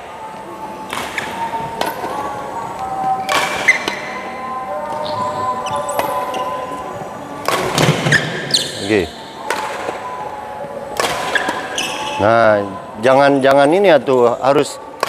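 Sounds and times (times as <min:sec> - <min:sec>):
background music: 0:00.0 - 0:15.0
badminton racket hitting shuttlecock: 0:03.2 - 0:04.1, 0:07.4 - 0:08.8, 0:11.0 - 0:12.2.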